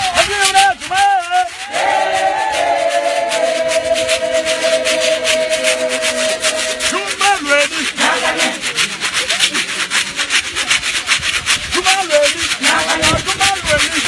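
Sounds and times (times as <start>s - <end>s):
raspy hand percussion: 0.0s - 14.0s
choir singing: 1.6s - 8.7s, 12.6s - 13.6s.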